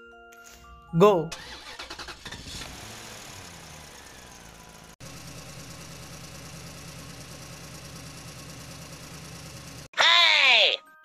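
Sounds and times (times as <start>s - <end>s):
vehicle engine idling: 1.4s - 9.9s.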